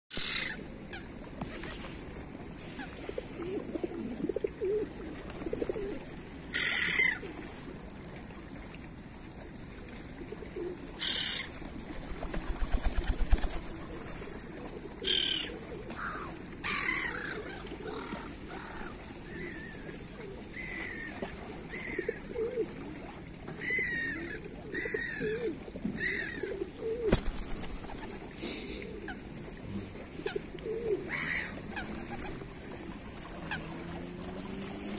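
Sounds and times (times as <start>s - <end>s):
pigeon cooing: 2.8s - 6.1s, 21.7s - 22.8s, 23.6s - 34.3s.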